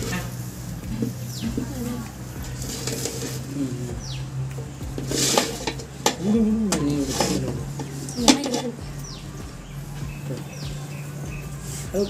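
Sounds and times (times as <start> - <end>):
metal lid scraping pot rim: 2.6 - 3.5, 5.0 - 6.2.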